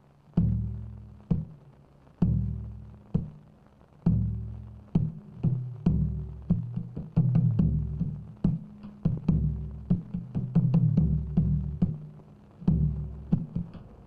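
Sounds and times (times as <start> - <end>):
sharp drum strikes: 4.1 - 14.0.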